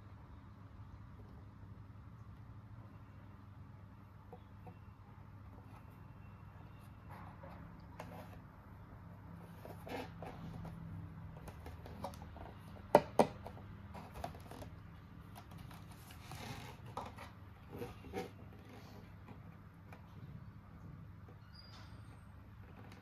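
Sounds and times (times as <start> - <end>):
faint low hum: 0.0 - 23.0.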